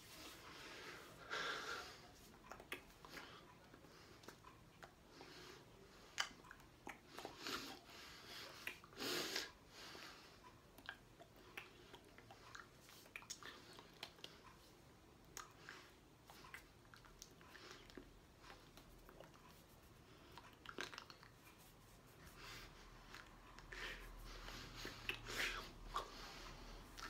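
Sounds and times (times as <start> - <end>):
hands and clothing rustling: 0.0 - 1.2, 21.2 - 25.4
lip and tongue clicks: 6.0 - 7.8, 8.4 - 9.0, 10.7 - 14.6, 15.2 - 19.4, 20.2 - 21.4.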